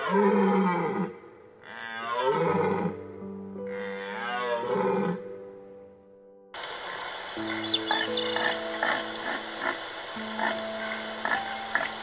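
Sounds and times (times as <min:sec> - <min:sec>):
deer stag roaring: 0:00.0 - 0:03.0, 0:03.7 - 0:05.2
background music with held tones: 0:00.0 - 0:12.0.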